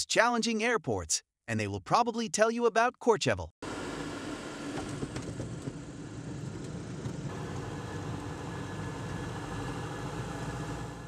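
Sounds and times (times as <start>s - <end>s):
aircraft engine drone: 3.6s - 11.0s.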